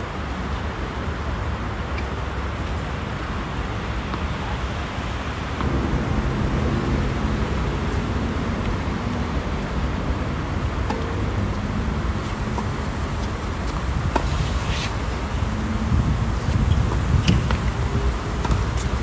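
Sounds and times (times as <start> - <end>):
city traffic rumble: 0.0 - 19.0
tennis balls being struck: 5.6 - 15.6, 16.8 - 19.0
low engine hum: 5.6 - 19.0.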